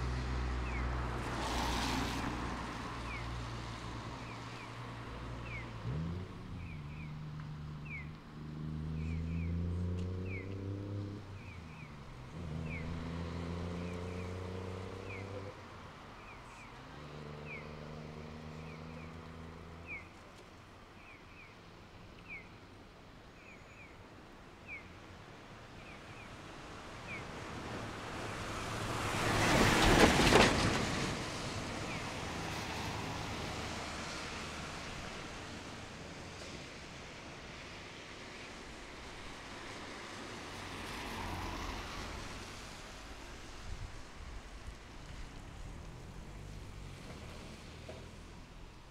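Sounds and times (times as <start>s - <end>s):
vehicle engine accelerating through gears: 5.5s - 11.2s, 12.3s - 15.5s
vehicle passing close: 8.4s - 11.4s, 12.2s - 15.6s.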